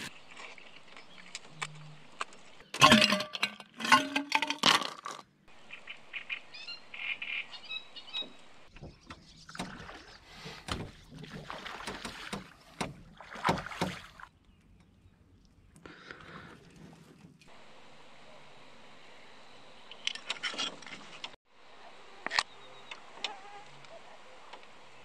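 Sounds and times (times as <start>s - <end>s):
water slopping: 8.2s - 17.5s
knocks against a small boat: 10.6s - 14.1s.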